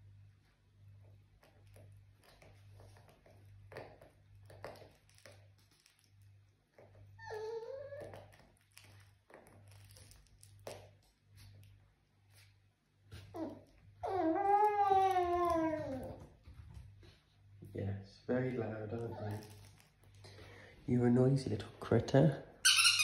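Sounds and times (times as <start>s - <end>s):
puppy chewing and snuffling: 0.8s - 17.2s
puppy whining: 1.4s - 10.5s, 13.1s - 16.5s, 18.9s - 19.7s.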